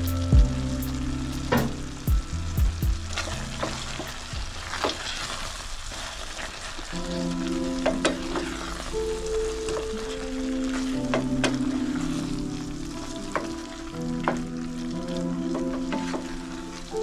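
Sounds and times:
stew sizzling: 0.0s - 17.0s
wooden spoon scraping metal pot: 3.2s - 6.9s.

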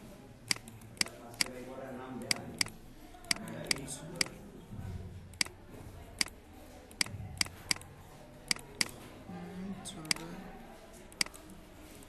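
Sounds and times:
faint low room murmur: 0.0s - 12.0s
computer mouse clicking: 0.5s - 1.6s, 2.2s - 4.4s, 6.2s - 7.9s, 8.5s - 9.0s, 10.0s - 10.3s, 11.1s - 12.0s.

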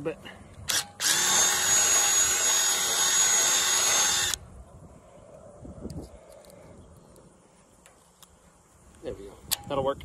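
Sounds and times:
cordless drill whining: 0.7s - 4.4s
faint clicks and handling noise: 5.3s - 9.8s.

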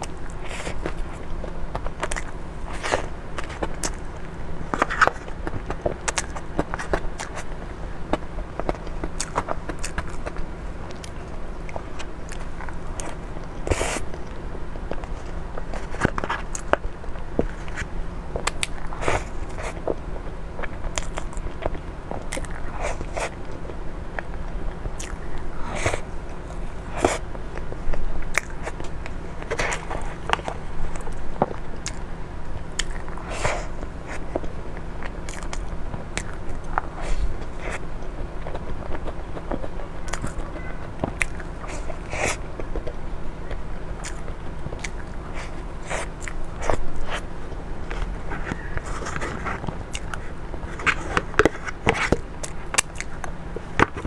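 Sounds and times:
chewing mouth sounds: 0.0s - 20.0s, 20.6s - 47.2s, 47.8s - 54.0s.

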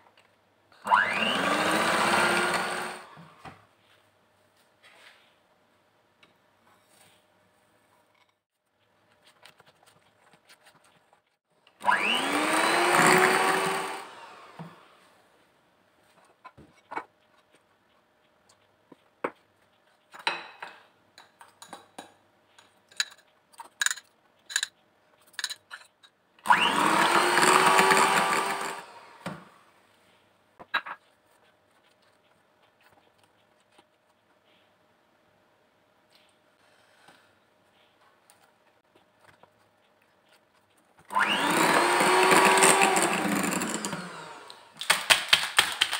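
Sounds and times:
electric hand mixer whining: 0.9s - 3.3s, 11.8s - 15.0s, 26.5s - 29.6s, 41.1s - 44.8s.

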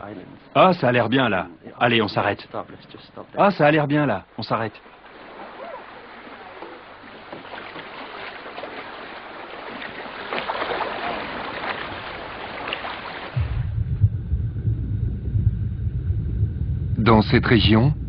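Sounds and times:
sea water splashing: 4.2s - 13.8s
low underwater rumble: 10.9s - 18.0s.

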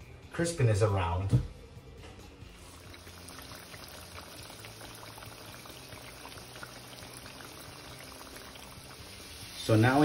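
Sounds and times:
potatoes fizzing in oil: 2.6s - 10.0s.

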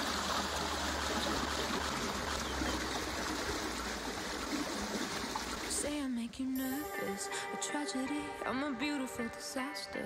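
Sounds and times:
water flowing in channel: 0.0s - 7.6s.

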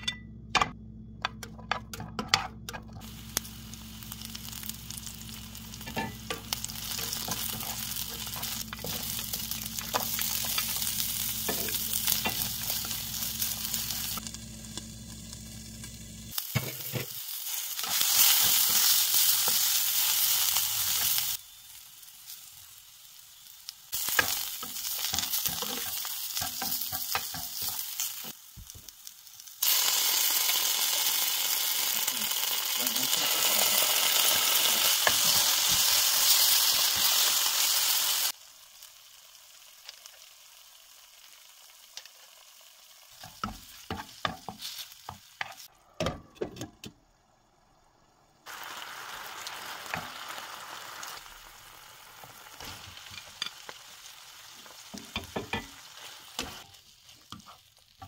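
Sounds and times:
low hum: 0.0s - 16.3s
vegetables sizzling in a pan: 2.9s - 46.0s, 47.1s - 58.0s.

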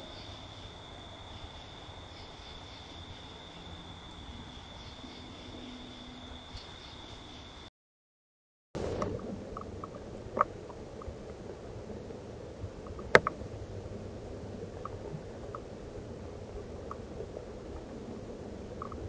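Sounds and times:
outdoor background hiss: 0.0s - 7.7s, 8.8s - 19.0s
faint ticks: 18.8s - 19.0s.

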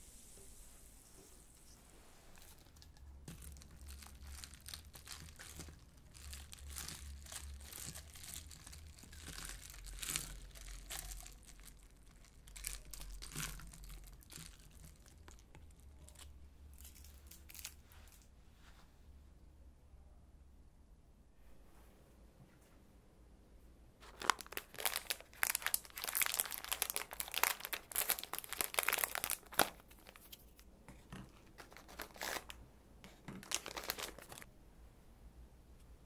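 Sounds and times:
straw stirring ice in a glass: 2.4s - 15.3s.

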